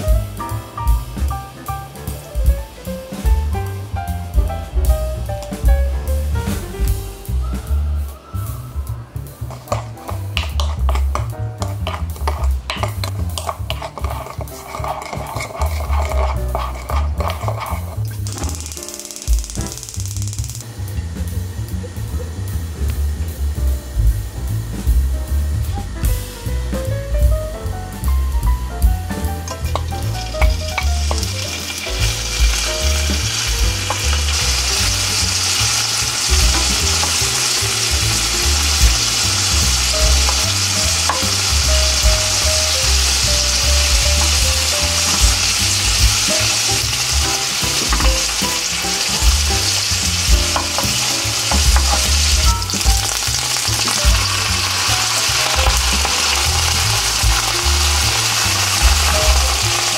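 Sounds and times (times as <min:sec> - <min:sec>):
bacon sizzling in a frying pan: 0:06.3 - 0:27.3, 0:28.4 - 0:59.9.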